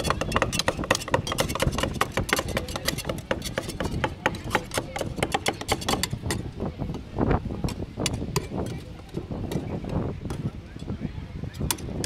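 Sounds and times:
metal scrapers clacking on stone: 0:00.0 - 0:06.5.

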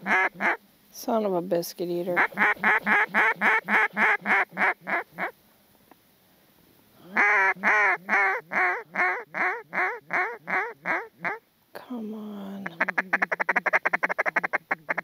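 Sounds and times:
duck call quacks: 0:00.0 - 0:00.6, 0:02.2 - 0:05.3, 0:07.2 - 0:11.4, 0:12.8 - 0:15.0.

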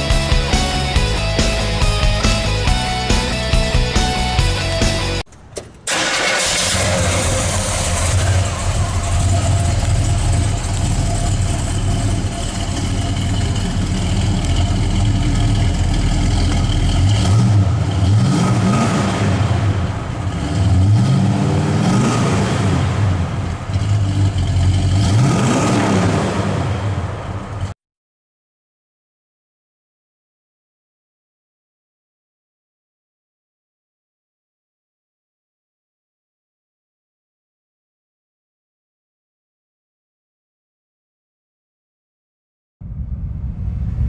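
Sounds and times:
car engine idling and revving: 0:00.0 - 0:27.8.

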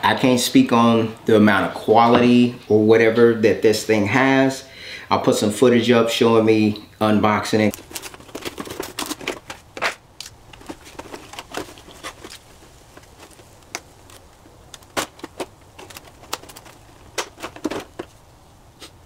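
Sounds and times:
cardboard box being opened: 0:07.7 - 0:18.2.

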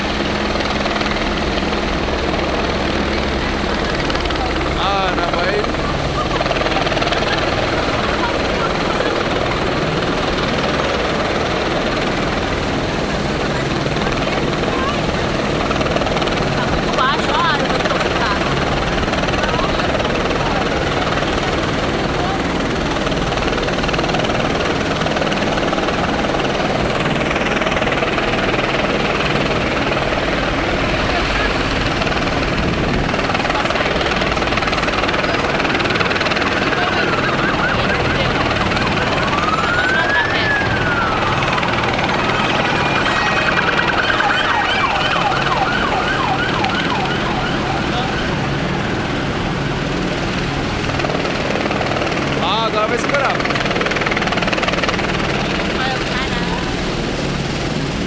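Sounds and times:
siren yelping: 0:00.0 - 0:12.1, 0:27.5 - 0:49.2
helicopter rotor beating: 0:00.0 - 0:58.0
street traffic: 0:00.0 - 0:58.0.

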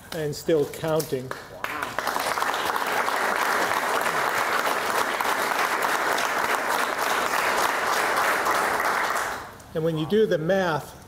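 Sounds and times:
group of people clapping: 0:01.2 - 0:09.6.

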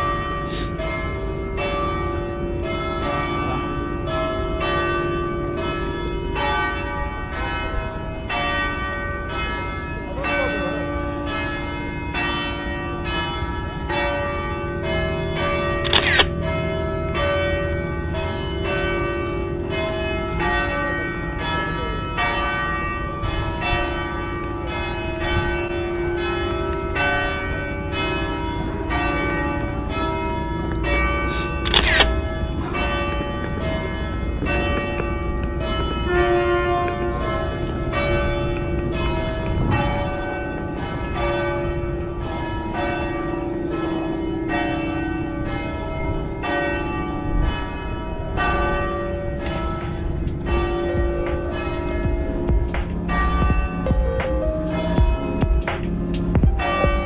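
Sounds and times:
church bells ringing: 0:00.0 - 0:57.0
camera shutter click: 0:15.9 - 0:16.3, 0:31.6 - 0:32.1.

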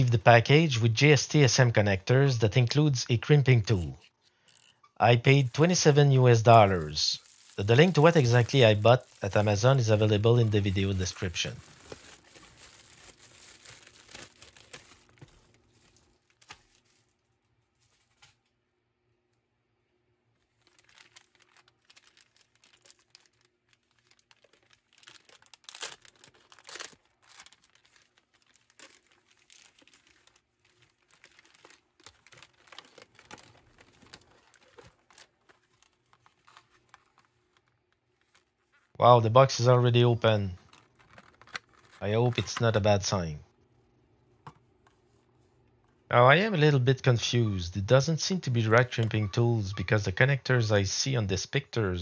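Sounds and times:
plastic packaging crinkling: 0:03.6 - 0:18.5, 0:20.4 - 0:39.0, 0:40.4 - 0:42.8.

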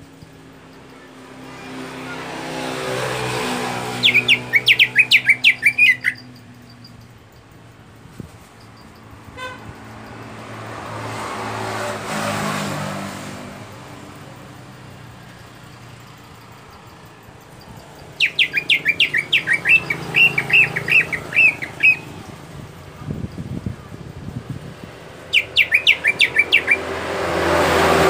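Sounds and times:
motor vehicle passing: 0:00.0 - 0:28.0
bird chirping: 0:02.6 - 0:07.7, 0:14.4 - 0:22.4, 0:24.8 - 0:27.2
vehicle horn toot: 0:09.2 - 0:09.9.

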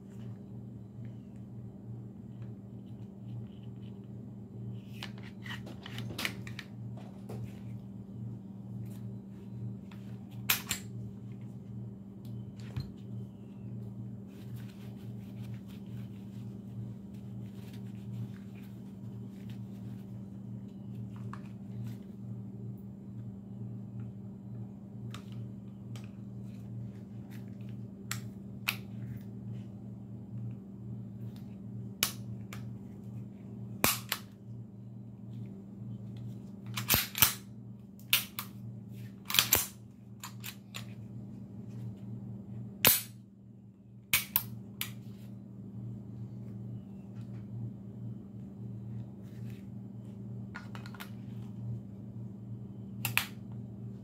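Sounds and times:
low hum: 0:00.0 - 0:54.0
metallic clicks of pistol parts: 0:10.5 - 0:10.9, 0:36.6 - 0:37.4, 0:39.3 - 0:40.9, 0:44.1 - 0:44.9.

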